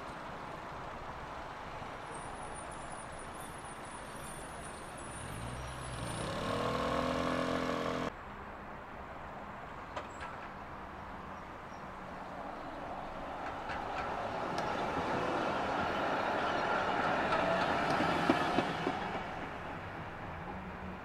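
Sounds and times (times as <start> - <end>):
traffic noise: 0.0 - 21.0
tram running on street track: 0.0 - 21.0
tram motor hum: 13.2 - 19.9.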